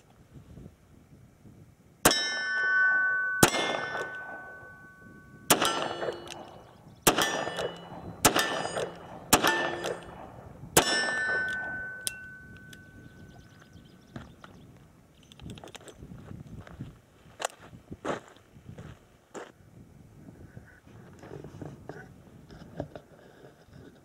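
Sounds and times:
steel target ringing: 2.0s - 13.3s.

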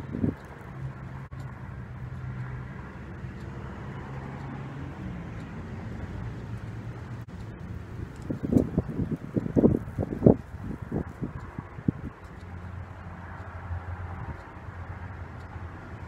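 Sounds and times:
wind buffeting microphone: 0.0s - 1.4s, 5.6s - 14.9s
low hum of vehicle engine: 0.0s - 16.0s.

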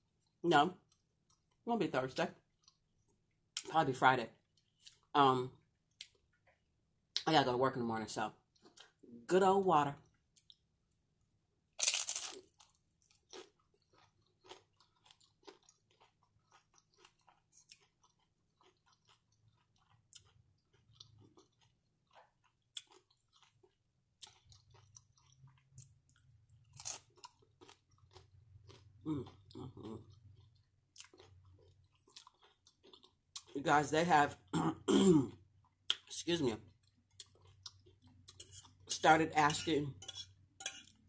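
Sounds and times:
chewing crunchy chips: 11.8s - 33.7s, 35.3s - 39.0s.

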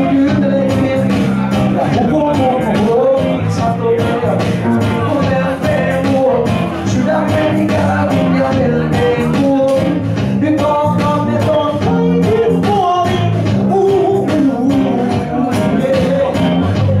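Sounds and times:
electric guitars strumming: 0.0s - 17.0s
man singing into a microphone: 0.0s - 17.0s.

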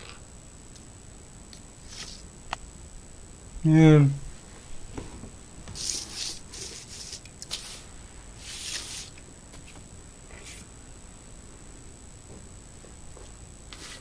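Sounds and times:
rustling and rubbing: 4.6s - 10.7s, 12.2s - 14.0s.

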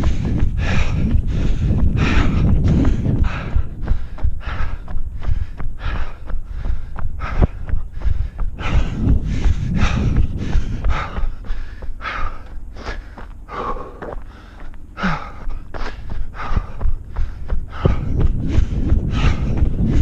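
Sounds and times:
runner heavy breathing: 0.0s - 20.0s.

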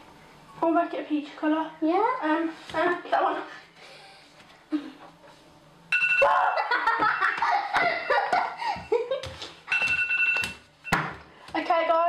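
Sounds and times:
girls laughing: 6.3s - 9.6s
phone timer two-tone beeping: 9.7s - 11.0s.

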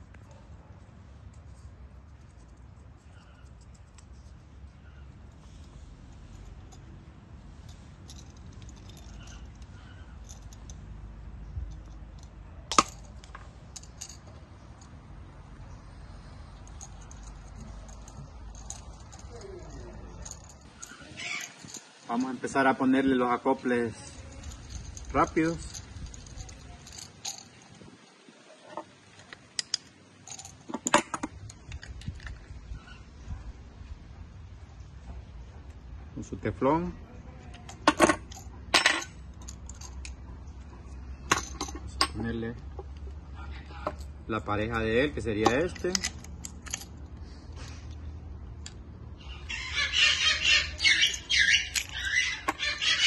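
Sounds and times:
metal fittings clinking: 2.4s - 15.0s, 15.6s - 22.9s, 23.9s - 27.9s, 29.2s - 32.5s, 37.5s - 40.3s, 40.9s - 42.9s, 45.1s - 47.2s, 50.8s - 53.0s
small metal fittings clicking: 45.4s - 47.0s.

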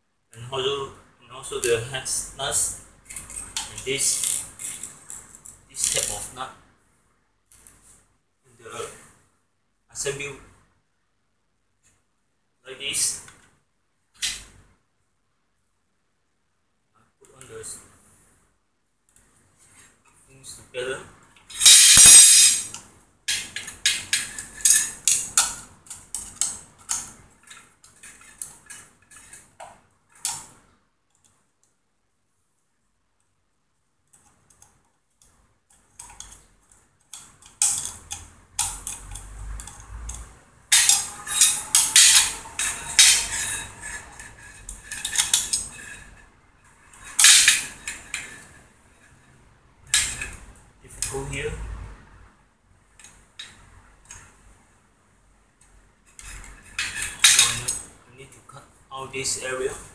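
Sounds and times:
metal parts clinking and rattling: 3.0s - 6.3s, 21.5s - 29.4s, 37.1s - 46.2s, 46.9s - 48.6s, 49.9s - 50.4s, 56.2s - 57.8s.

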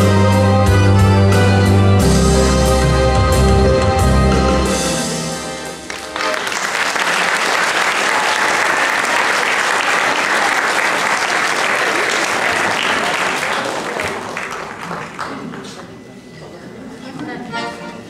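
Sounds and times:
held music chord: 0.0s - 6.3s
audience applauding: 5.9s - 16.0s.

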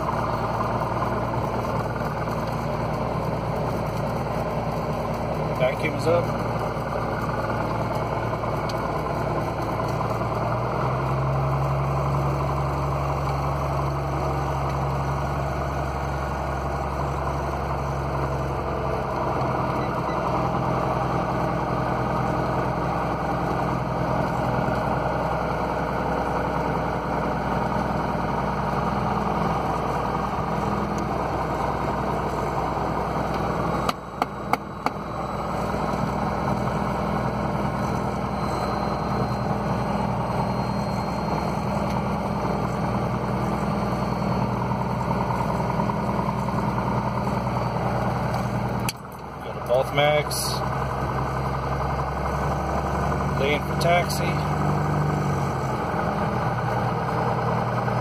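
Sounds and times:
aircraft engine idling: 0.0s - 58.0s.

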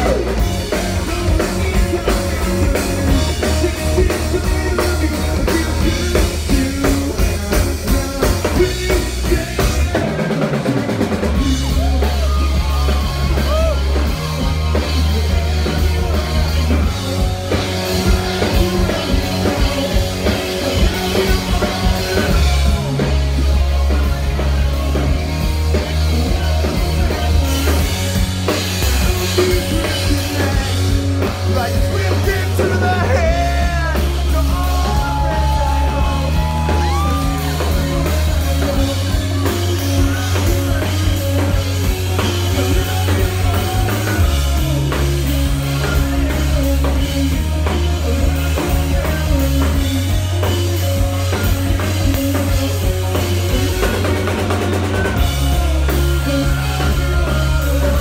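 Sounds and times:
person singing: 0.0s - 58.0s
rock band playing live: 0.0s - 58.0s
person shouting: 34.5s - 37.8s.

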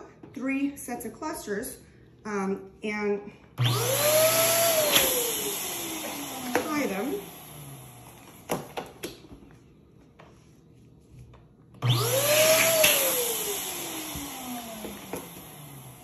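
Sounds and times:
electric balloon inflator motor: 3.6s - 8.9s, 11.8s - 16.0s.

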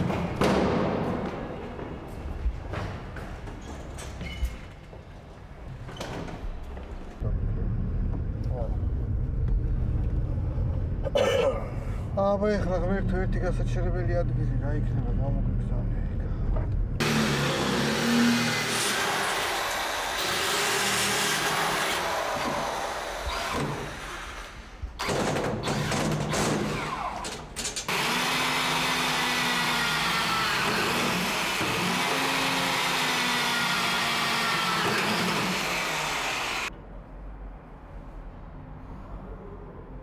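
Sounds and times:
electric drill boring into steel: 17.0s - 25.9s, 27.9s - 36.7s.

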